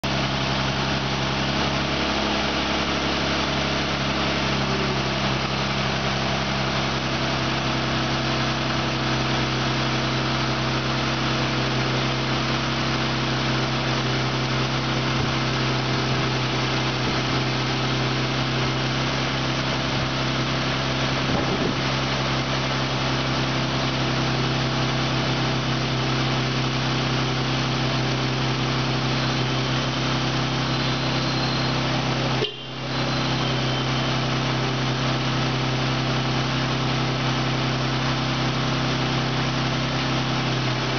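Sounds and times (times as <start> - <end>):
car engine idling: 0.0 - 40.9.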